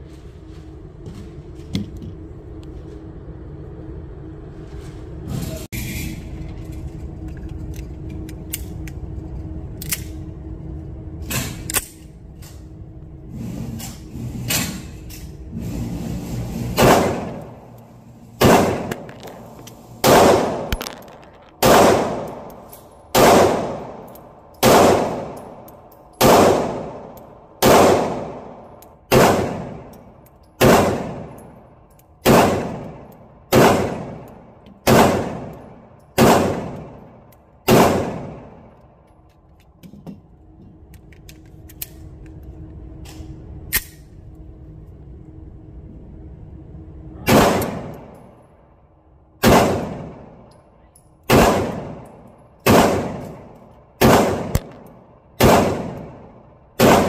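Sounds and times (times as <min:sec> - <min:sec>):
steady hum: 0:00.0 - 0:57.0
pistol shots echoing indoors: 0:18.4 - 0:38.8, 0:47.2 - 0:48.4, 0:49.4 - 0:50.6, 0:51.2 - 0:57.0.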